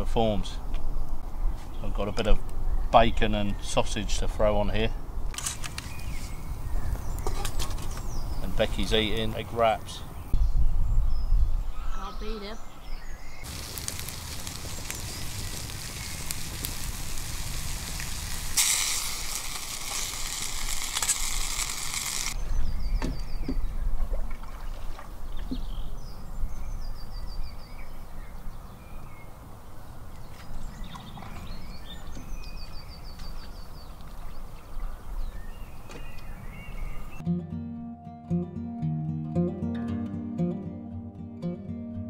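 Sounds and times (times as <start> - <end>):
birds trilling: 4.9 - 10.4
food sizzling in frying pan: 13.4 - 22.4.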